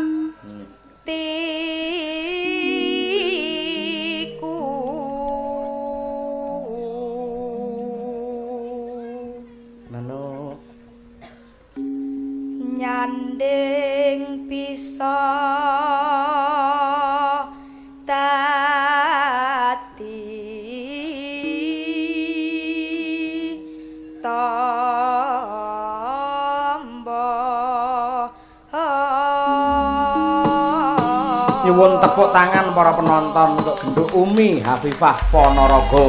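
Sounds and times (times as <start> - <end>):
woman singing ornamented phrases: 0.0 - 10.6, 12.4 - 31.7
singer breathing: 17.5 - 18.0, 23.6 - 24.2, 28.3 - 28.7
low held drone note: 29.6 - 31.1.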